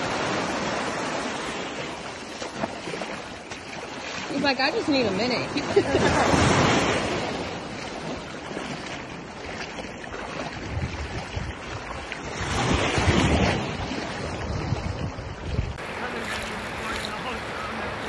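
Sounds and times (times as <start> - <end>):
surf washing at shore: 0.0 - 18.0
wind buffeting microphone: 4.3 - 18.0.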